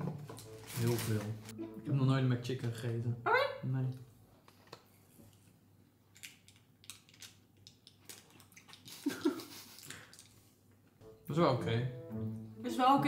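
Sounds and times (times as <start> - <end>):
paper packaging being handled: 0.2 - 1.5.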